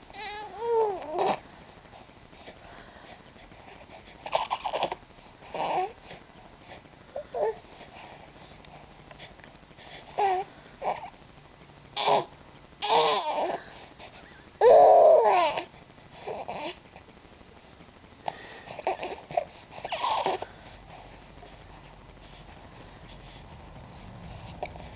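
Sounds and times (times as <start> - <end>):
infant cooing and babbling: 0.1 - 1.4, 4.2 - 6.0, 7.1 - 7.6, 10.1 - 11.1, 12.0 - 13.6, 14.6 - 16.8, 18.8 - 20.4.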